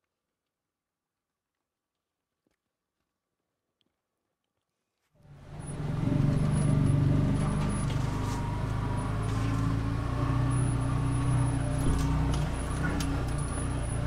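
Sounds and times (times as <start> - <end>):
vehicle engine running: 5.2 - 14.0.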